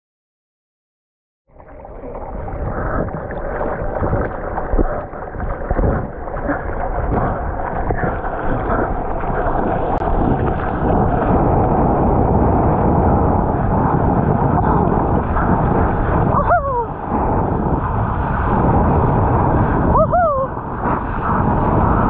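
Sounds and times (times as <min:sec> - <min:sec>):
rush of water: 0:01.5 - 0:22.0
sea water splashing: 0:01.5 - 0:22.0
wind: 0:01.5 - 0:22.0.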